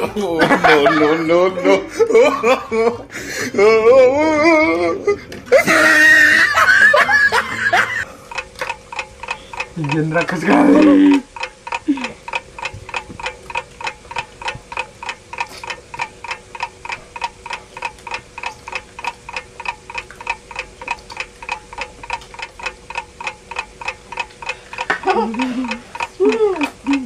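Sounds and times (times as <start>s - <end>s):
timer ticking: 5.5s - 27.0s.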